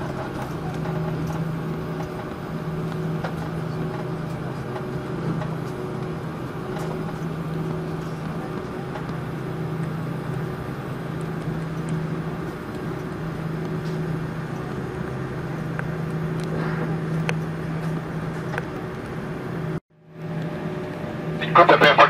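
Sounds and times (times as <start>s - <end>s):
jet engines idling hum: 0.0s - 22.0s
cabin air rush: 9.4s - 19.8s.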